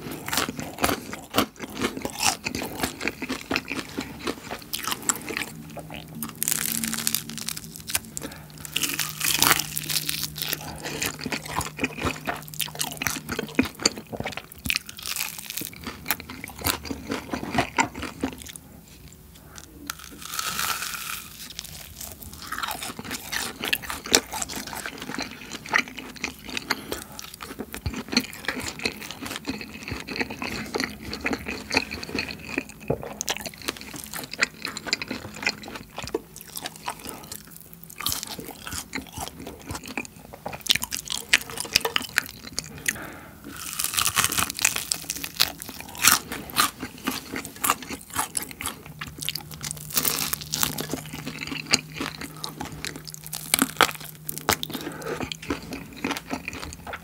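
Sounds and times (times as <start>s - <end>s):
crunching and chewing fried chicken: 0.0s - 57.0s.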